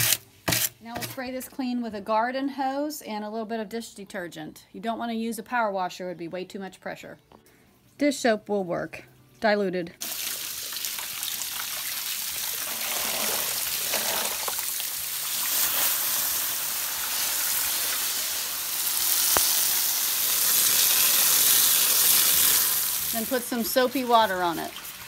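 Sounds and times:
hose nozzle spraying water: 10.0s - 24.8s.

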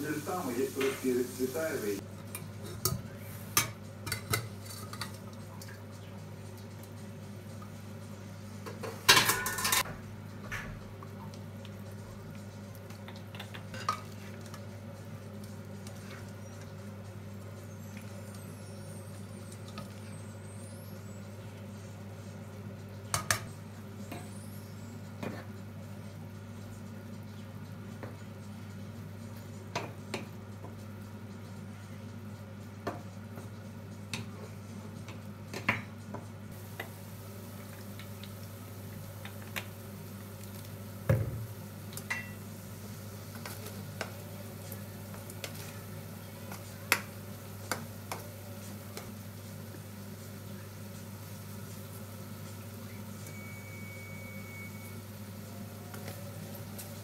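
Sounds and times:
meat sizzling in a pan: 0.0s - 2.0s, 36.6s - 57.0s
utensils clinking and scraping pots: 0.1s - 5.8s, 8.7s - 9.9s, 13.1s - 14.6s, 41.9s - 42.4s.

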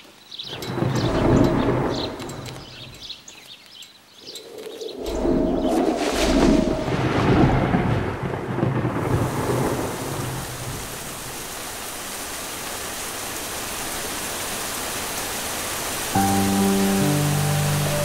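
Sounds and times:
thunder rumbling: 0.5s - 3.0s, 5.0s - 11.5s
heavy rain hissing: 5.5s - 18.0s.

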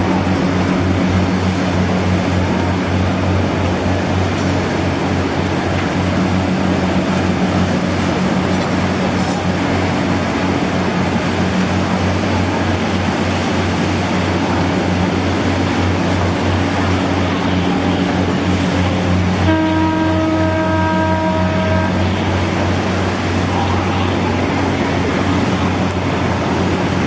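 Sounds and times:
rushing noise: 0.0s - 19.6s
boat engine droning: 0.0s - 27.0s.

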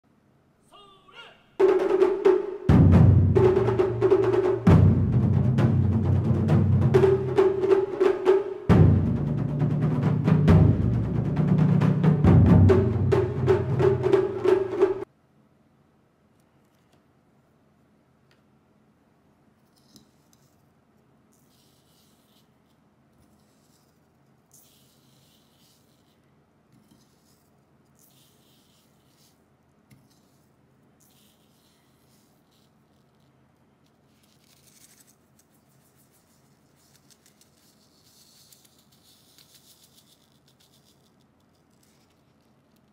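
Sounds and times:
sand hissing onto paper: 24.5s - 26.2s, 28.0s - 29.4s, 31.0s - 32.9s, 34.1s - 42.2s.

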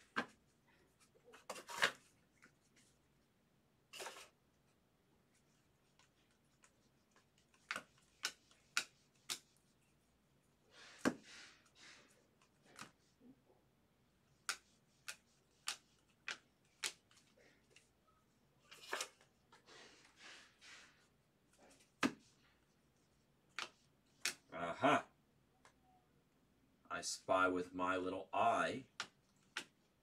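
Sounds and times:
card rustling: 0.0s - 2.9s, 3.9s - 4.4s
cards snapping as flipped: 14.5s - 17.2s.

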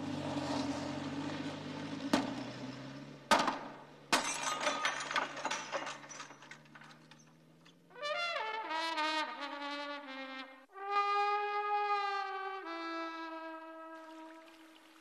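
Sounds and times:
trumpet phrase: 8.0s - 14.5s.

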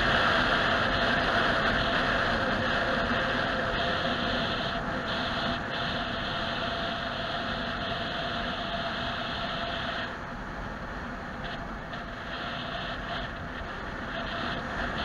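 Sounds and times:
high hiss: 0.0s - 10.2s
car road and engine noise: 0.0s - 15.0s.

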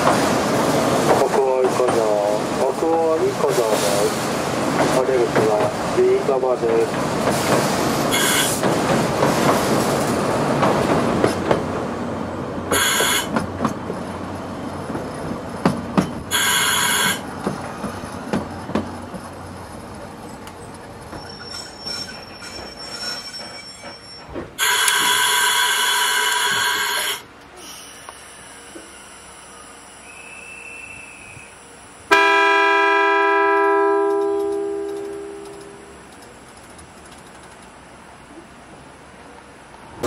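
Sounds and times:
train wheels clicking on rails: 0.0s - 12.0s, 12.7s - 32.0s, 33.7s - 38.9s
train rolling rumble: 0.0s - 40.0s
wheels squealing: 21.0s - 28.0s.

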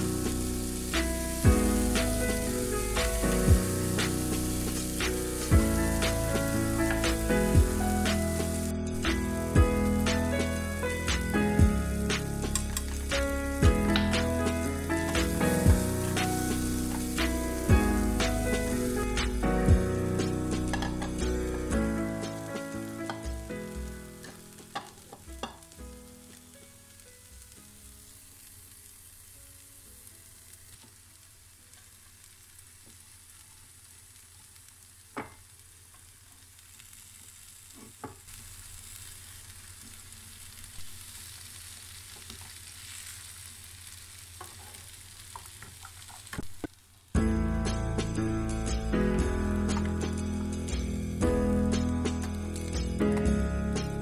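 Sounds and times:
background music: 0.0s - 27.5s, 47.2s - 54.0s
vegetables sizzling in oil: 0.0s - 54.0s.

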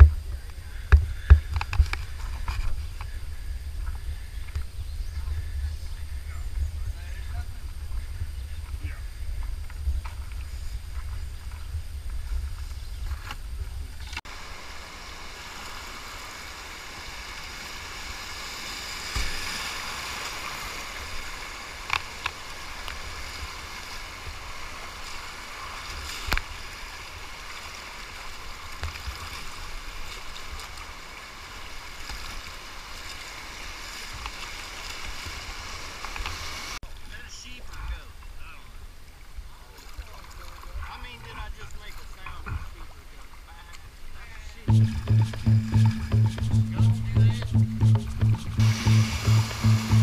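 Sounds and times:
low rumble: 44.7s - 50.0s
whitewater rushing: 44.7s - 50.0s.

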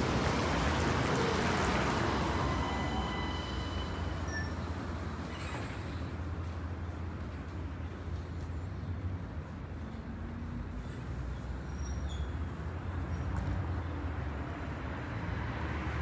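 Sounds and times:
low traffic rumble: 0.0s - 16.0s
thin high squeals: 2.3s - 4.7s.

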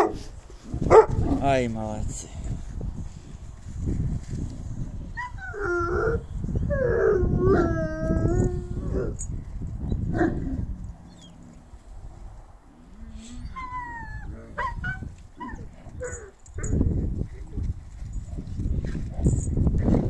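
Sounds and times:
dogs whining howls: 5.2s - 9.3s, 13.3s - 16.7s.

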